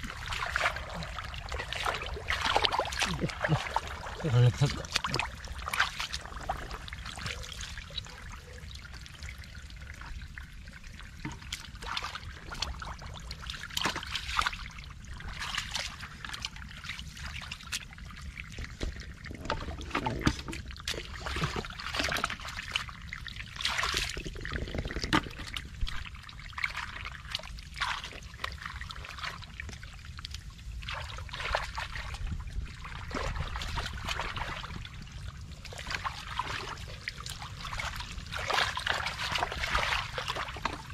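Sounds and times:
hands splashing in muddy water: 0.0 - 8.0, 35.8 - 40.9.

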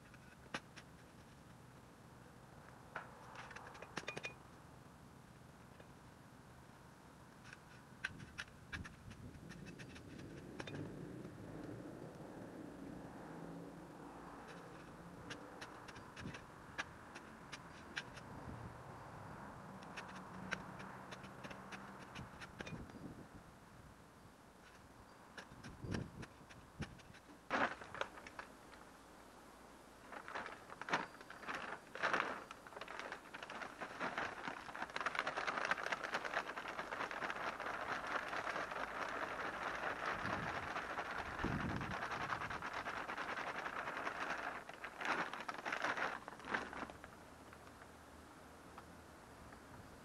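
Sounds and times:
bags crinkling and scraping: 26.4 - 28.5, 30.0 - 47.6
loose material pouring from bag: 30.1 - 47.1.

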